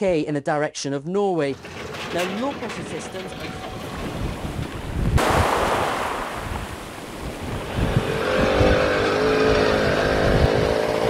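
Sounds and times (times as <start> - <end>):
rushing noise: 5.2 - 8.6
quad bike engine running: 7.6 - 11.0.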